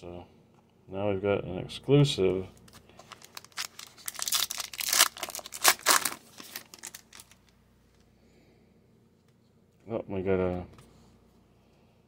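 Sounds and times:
foil wrapper tearing and crinkling: 3.1s - 7.5s.

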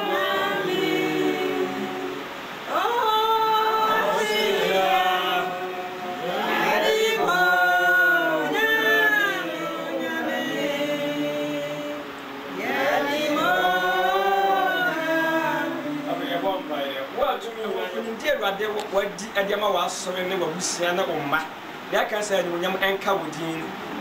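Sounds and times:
group singing unaccompanied: 0.0s - 19.5s.

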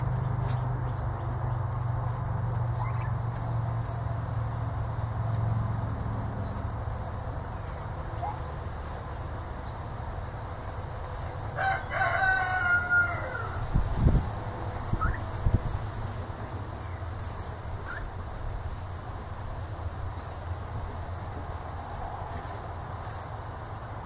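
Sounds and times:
turkeys pecking and rustling: 0.0s - 24.0s
turkey chirps: 2.7s - 3.2s, 14.9s - 15.4s, 17.8s - 18.1s
turkey trilling call: 2.8s - 3.2s, 14.9s - 15.4s, 17.8s - 18.1s.

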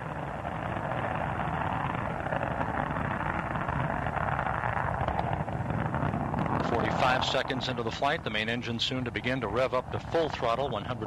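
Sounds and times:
rocket ascent roar: 0.0s - 11.0s.

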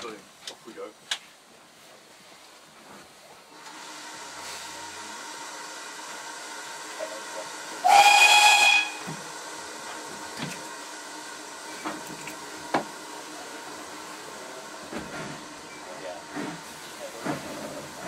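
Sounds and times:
train running noise: 2.8s - 18.0s
steam locomotive whistle: 7.8s - 9.2s.

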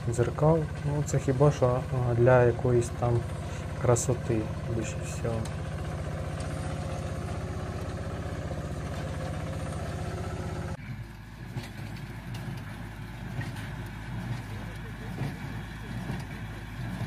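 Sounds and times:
tractor engine running: 0.0s - 17.0s
tractor working hay baler: 0.0s - 17.0s.

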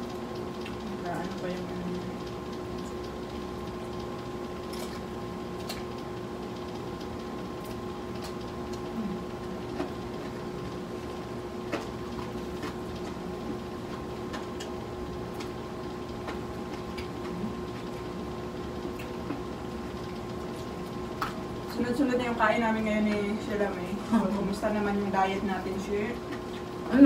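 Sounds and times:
steady mechanical hum: 0.0s - 27.0s
chewing: 11.0s - 18.2s.

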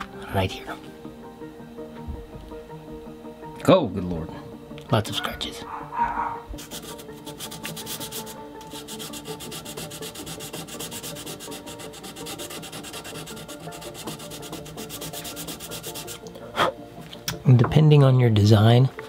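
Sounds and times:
sandpaper rubbing wood: 6.6s - 16.2s.

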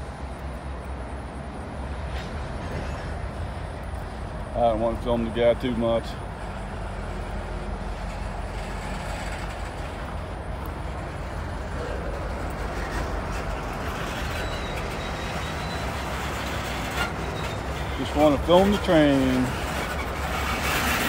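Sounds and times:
freight train rumbling: 0.0s - 21.0s.

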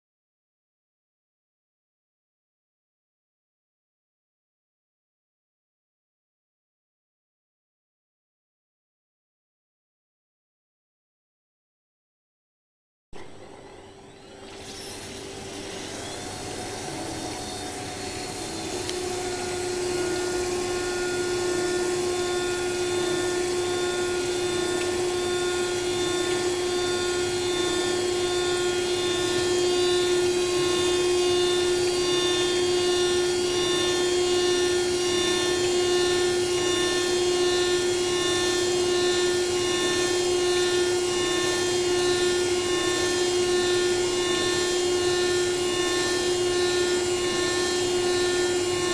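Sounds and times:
milling machine spindle whine: 13.2s - 48.9s.

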